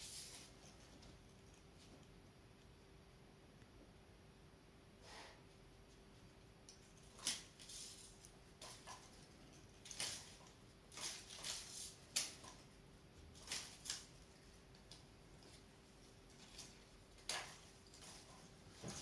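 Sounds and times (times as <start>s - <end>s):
artificial garland rustling: 0.0s - 2.1s, 6.8s - 19.0s.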